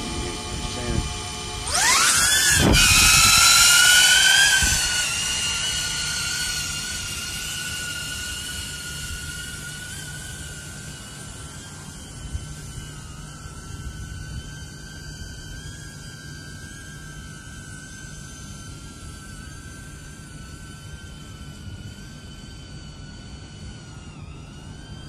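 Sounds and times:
drone propellers whining: 0.0 - 25.0.

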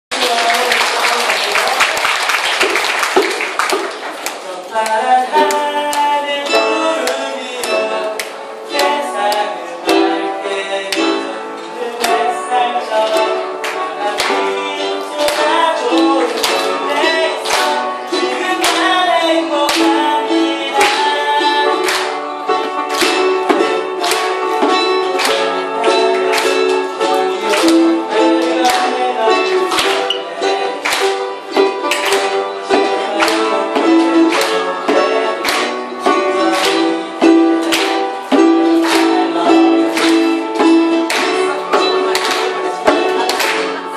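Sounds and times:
applause: 0.1 - 4.7, 15.2 - 16.7, 21.8 - 22.2, 27.5 - 28.9, 29.6 - 30.2, 30.8 - 31.3, 36.5 - 36.9, 38.8 - 39.2, 39.9 - 41.5, 42.1 - 42.6
ukulele strummed and picked: 2.6 - 43.9.

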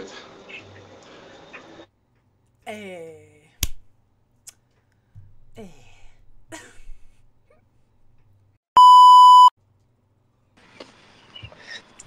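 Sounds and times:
electronic bleep: 8.8 - 9.5.

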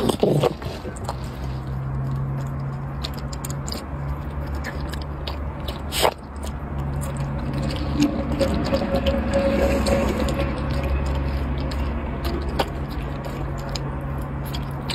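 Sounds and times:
puppy lapping and chewing: 0.0 - 14.9
steady low hum: 3.9 - 14.9.

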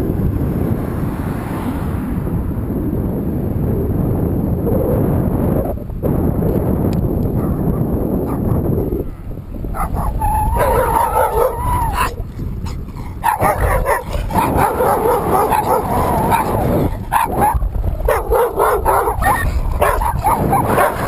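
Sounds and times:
wind rumble on microphone: 0.0 - 21.0
dogs barking and yelping: 7.3 - 8.8, 9.7 - 21.0.

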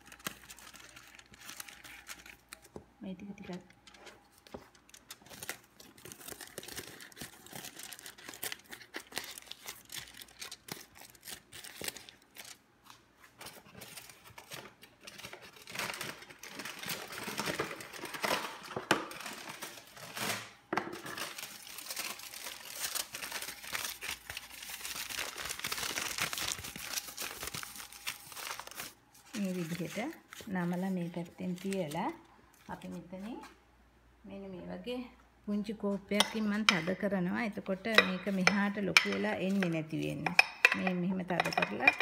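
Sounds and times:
aluminium foil crinkling: 0.0 - 33.4, 36.2 - 42.0.

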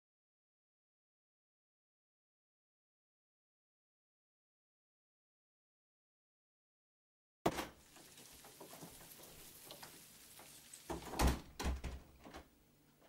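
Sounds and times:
door opening: 7.5 - 9.2, 10.5 - 12.5.

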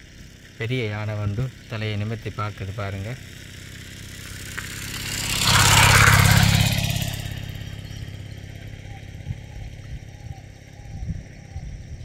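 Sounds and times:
motor vehicle passing by: 2.7 - 11.5.

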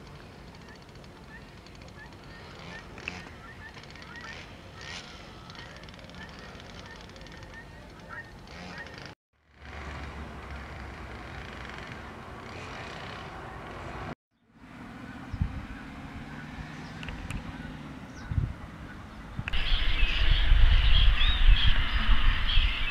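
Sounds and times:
water birds calling: 0.5 - 9.2
low rumble: 19.4 - 22.9.

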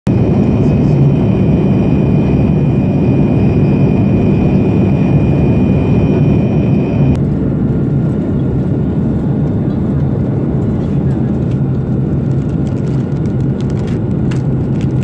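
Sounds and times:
airliner cabin rumble: 0.1 - 15.0.

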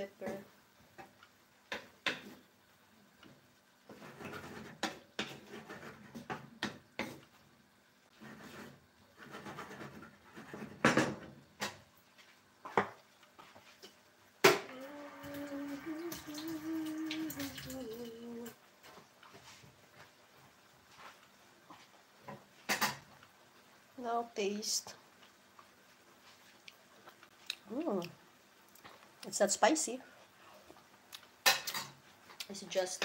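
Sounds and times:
wooden spoon stirring in skillet: 0.2 - 14.3, 15.2 - 27.4.

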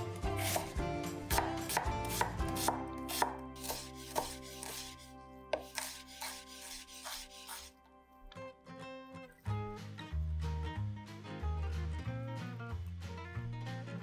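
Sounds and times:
knife chopping onion on wooden board: 0.0 - 7.7.

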